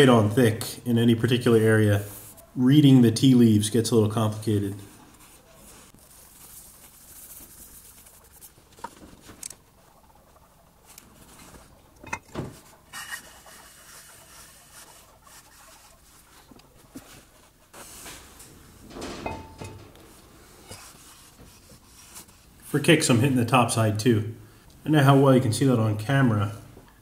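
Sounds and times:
steel parts knocking down: 18.3 - 20.8.

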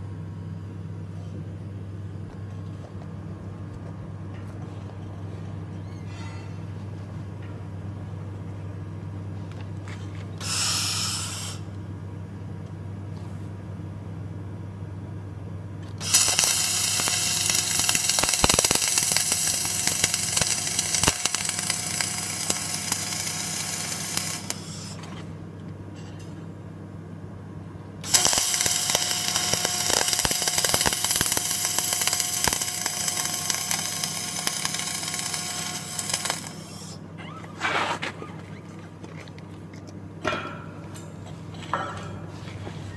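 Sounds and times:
low steady hum: 0.0 - 10.4, 11.6 - 42.9
welding arc crackle: 10.4 - 11.7, 16.0 - 25.1, 28.0 - 37.0.

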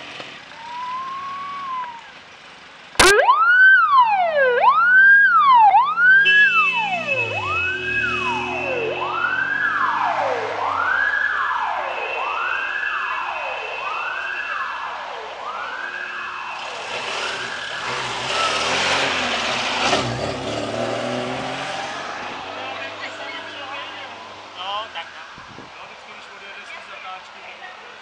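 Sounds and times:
police siren wailing: 0.5 - 2.2, 3.0 - 19.8, 20.8 - 25.8
steady higher siren tone: 0.6 - 2.0, 3.0 - 18.5
car engine passing: 3.0 - 14.1, 15.0 - 25.7.

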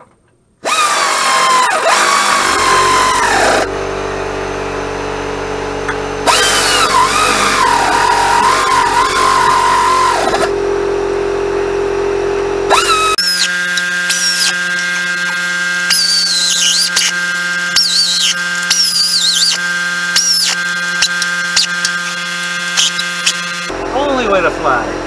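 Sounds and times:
air ratchet whining: 0.6 - 3.7, 6.2 - 10.5, 12.7 - 23.8
high squeals and clicks: 0.6 - 3.7, 6.3 - 10.5, 12.7 - 23.7
steady hum: 15.7 - 25.0.

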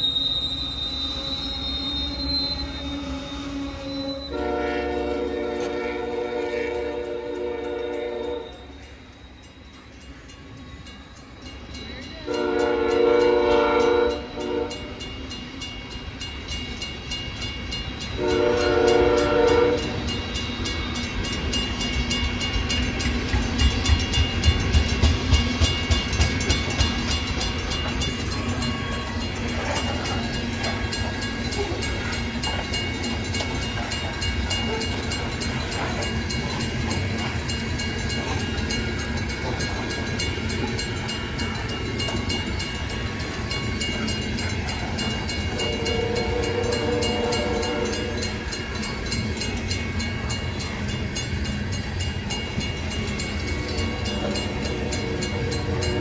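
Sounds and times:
freight train cars on rails: 0.0 - 56.0.

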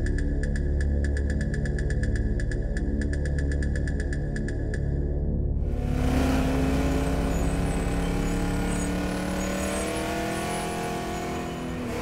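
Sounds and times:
car engine running: 5.6 - 12.0
road noise: 5.6 - 12.0.

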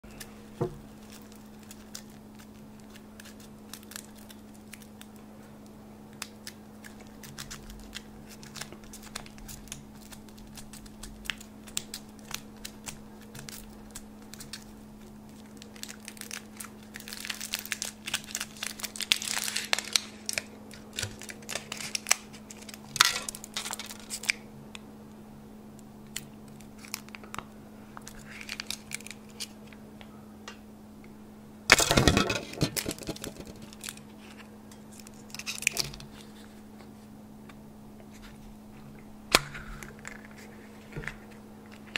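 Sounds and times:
foil wrapper crinkling and tearing: 0.0 - 5.2, 6.1 - 24.4, 26.0 - 29.7, 31.7 - 36.6.

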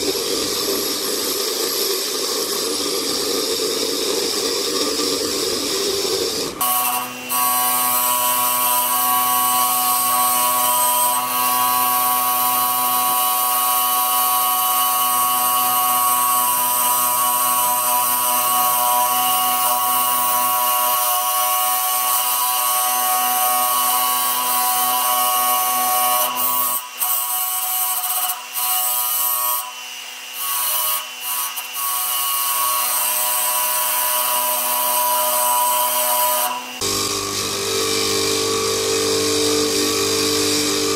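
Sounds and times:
polishing wheel motor whine: 36.8 - 40.9.

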